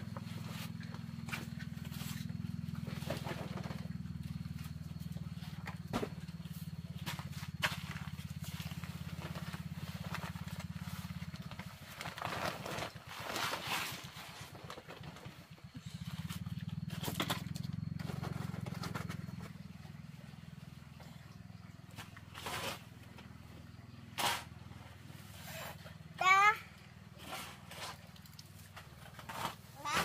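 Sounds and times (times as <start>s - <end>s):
steady low engine hum: 0.0s - 30.0s
paper sack rustling and scraping: 7.5s - 16.2s.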